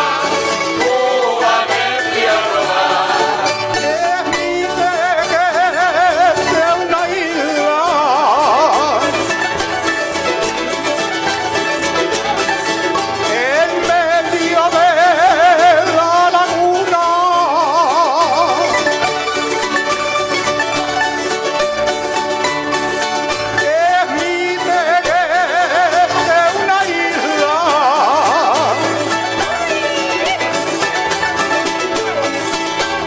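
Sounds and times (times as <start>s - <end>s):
person singing with vibrato: 0.0s - 9.5s, 13.1s - 19.0s, 23.4s - 31.6s
string accompaniment: 0.0s - 33.0s.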